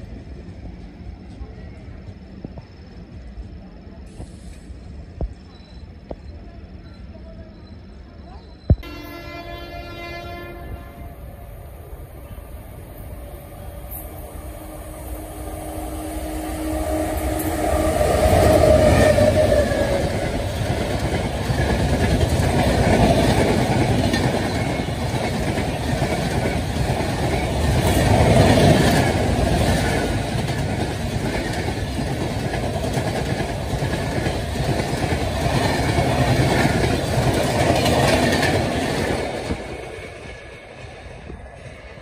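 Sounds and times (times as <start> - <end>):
locomotive hum and rush: 0.0 - 42.0
train wheels clacking on track: 12.9 - 42.0.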